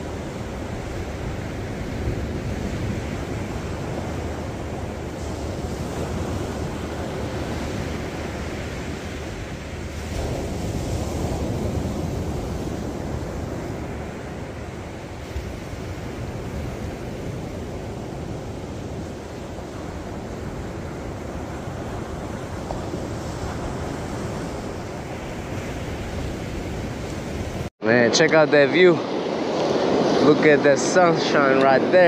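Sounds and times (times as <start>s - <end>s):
ocean surf breaking: 0.0s - 32.0s
wind rumbling on microphone: 0.0s - 32.0s.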